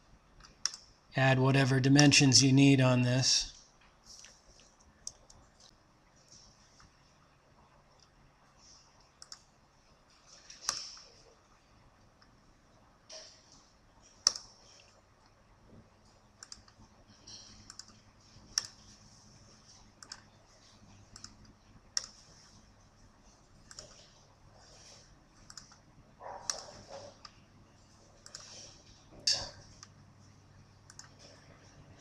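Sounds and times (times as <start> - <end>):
faint low hum: 0.0 - 32.0
computer mouse clicks: 0.4 - 0.9, 4.2 - 5.7, 9.0 - 9.5, 10.4 - 11.2, 14.1 - 15.4, 16.4 - 18.9, 20.0 - 20.4, 21.0 - 22.5, 23.6 - 25.8, 26.4 - 27.4, 28.2 - 30.0, 30.8 - 31.4.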